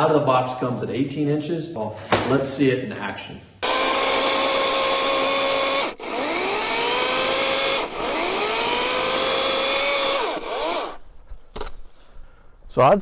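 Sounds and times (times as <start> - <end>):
chainsaw cutting log: 3.6 - 11.0.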